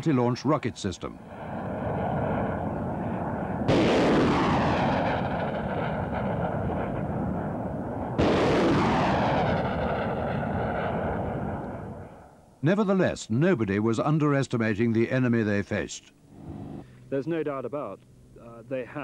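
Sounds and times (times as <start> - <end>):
rocket launch roar: 1.2 - 12.3.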